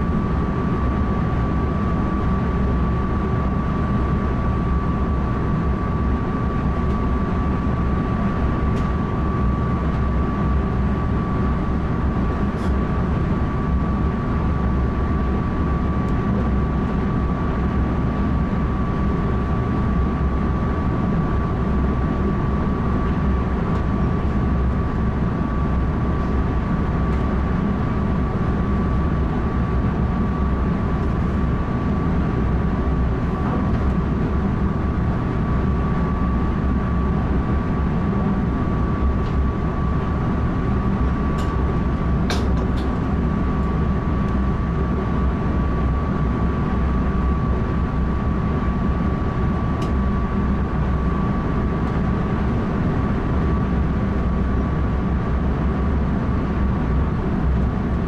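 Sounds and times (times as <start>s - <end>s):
train running rumble: 23.0s - 47.7s.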